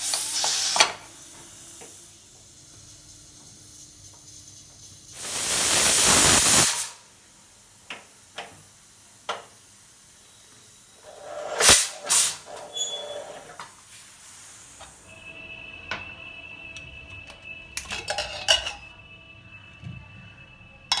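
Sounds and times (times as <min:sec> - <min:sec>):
steam hissing: 0:00.0 - 0:16.5.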